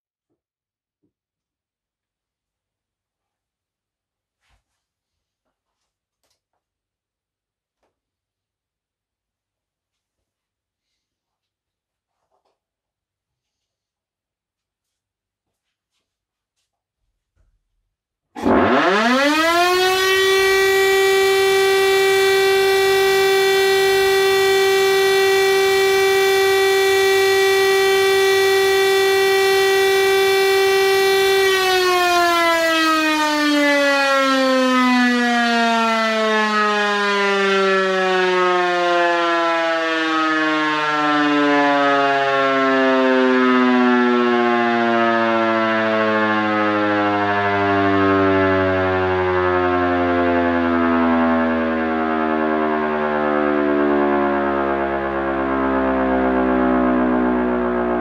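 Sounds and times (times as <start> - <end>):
air-raid siren: 18.3 - 58.0.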